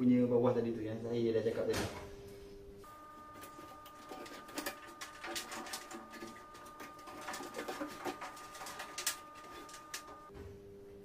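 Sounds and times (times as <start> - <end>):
faint steady high tone: 2.8 - 10.3.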